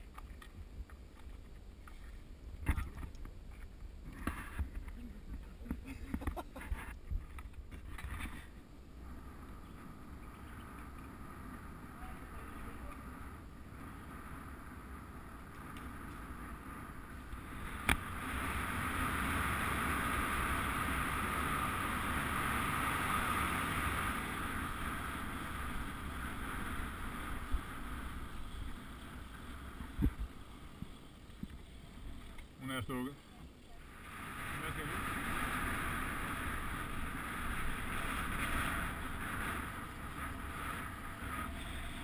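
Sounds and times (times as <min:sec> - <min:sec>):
wind buffeting microphone: 0:04.2 - 0:32.2.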